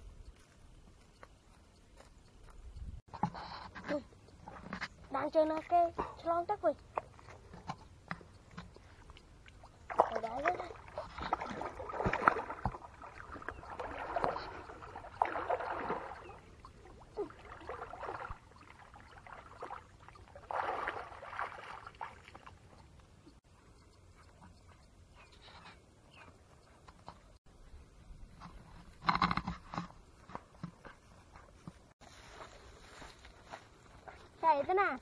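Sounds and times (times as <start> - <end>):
person wading through water: 5.4 - 23.3.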